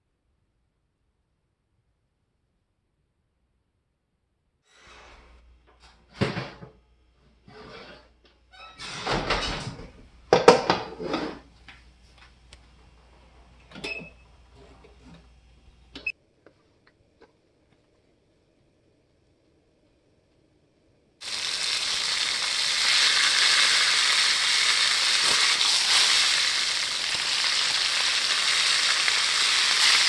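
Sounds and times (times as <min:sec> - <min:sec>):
oven door opening and shutting: 0:08.6 - 0:11.4.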